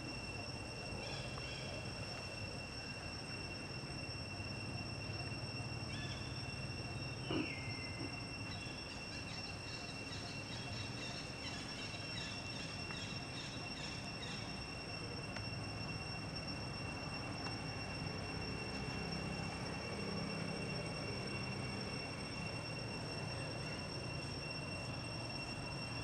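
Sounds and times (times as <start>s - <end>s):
high-pitched insect drone: 0.0s - 26.0s.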